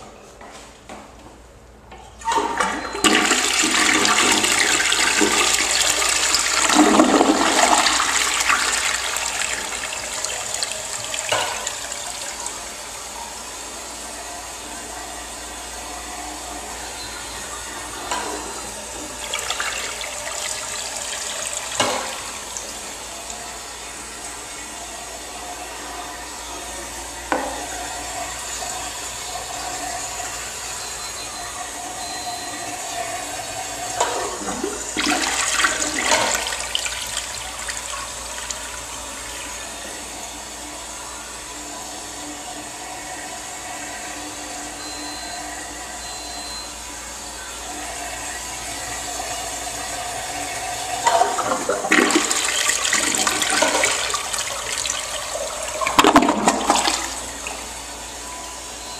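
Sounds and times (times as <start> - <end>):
toilet tank refilling hiss: 2.2 - 13.0, 32.8 - 40.6, 47.7 - 57.9
toilet flushing: 2.2 - 58.9.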